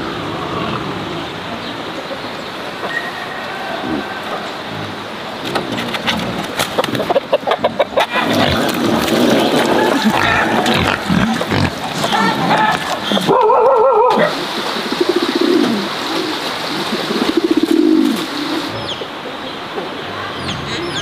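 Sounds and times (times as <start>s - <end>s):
faint high bird chirps: 2.8s - 3.5s
pigeons cooing: 4.0s - 19.3s
pigs grunting: 4.7s - 14.3s
pig squealing: 7.6s - 14.3s.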